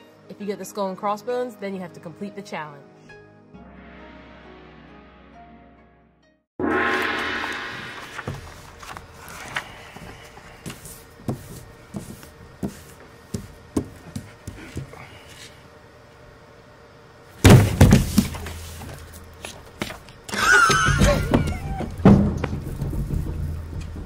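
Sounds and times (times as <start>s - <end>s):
brief high-pitched squeal: 6.6s - 8.8s
loud thump and clatter: 17.4s - 18.4s, 22.0s - 24.0s.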